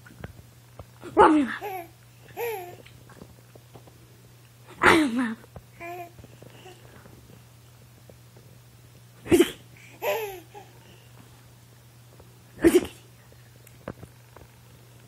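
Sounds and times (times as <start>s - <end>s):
baby laughing and vocalising: 1.6s - 2.9s, 5.8s - 6.8s, 9.4s - 11.0s
baby giggle-like cry: 10.0s - 10.7s.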